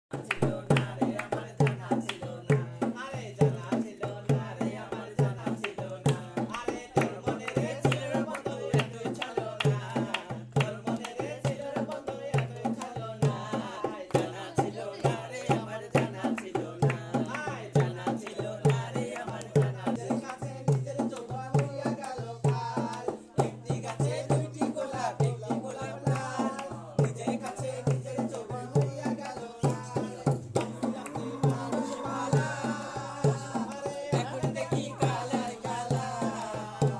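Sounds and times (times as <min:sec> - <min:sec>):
hand-clapping: 0:00.1 - 0:02.7, 0:05.4 - 0:36.9
hand drum folk rhythm: 0:00.1 - 0:36.9
person singing: 0:21.3 - 0:36.9.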